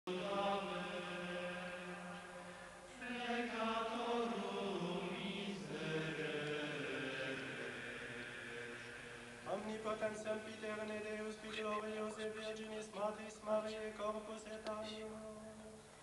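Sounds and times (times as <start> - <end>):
voices chanting long notes: 0.1 - 10.9.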